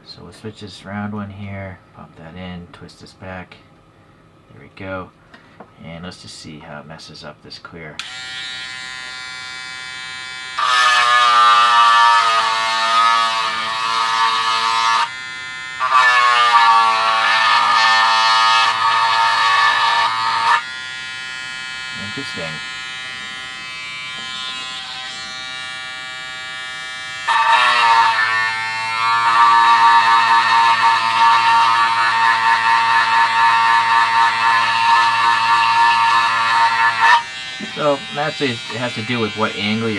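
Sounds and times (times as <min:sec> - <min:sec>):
electric sander buzzing: 0:08.0 - 0:39.9
sanding pad on hard plastic: 0:37.0 - 0:39.9.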